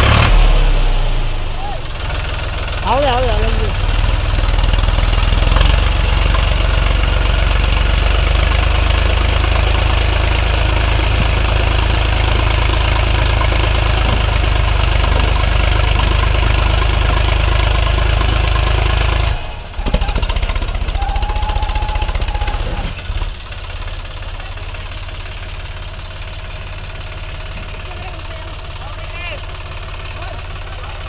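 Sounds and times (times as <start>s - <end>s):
tractor diesel engine running: 0.0s - 31.0s.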